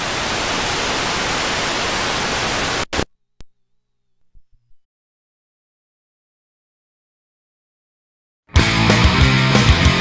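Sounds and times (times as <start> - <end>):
loud video static hiss: 0.0 - 3.1.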